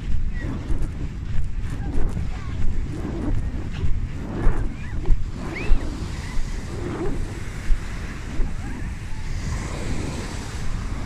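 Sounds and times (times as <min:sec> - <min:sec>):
wind buffeting microphone: 0:00.0 - 0:11.0
small waves breaking on shore: 0:02.2 - 0:11.0.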